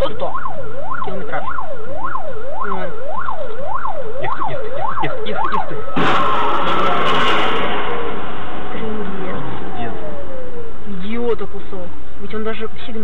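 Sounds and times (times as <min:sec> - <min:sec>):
siren yelping: 0:00.0 - 0:08.3, 0:09.1 - 0:11.2
loud burst of noise: 0:06.0 - 0:10.2.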